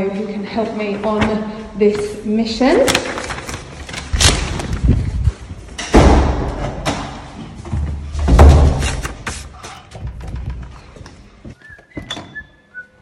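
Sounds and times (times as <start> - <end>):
wooden doors banging: 5.8 - 9.2.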